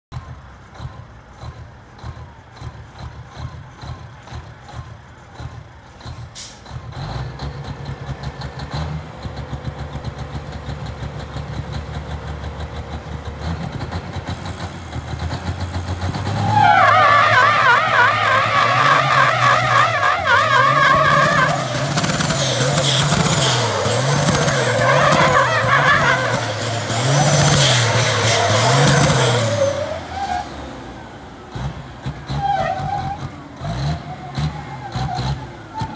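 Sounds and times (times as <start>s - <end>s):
diesel engine running hard: 0.1s - 35.9s
tire squeal: 16.1s - 30.7s, 32.1s - 35.9s.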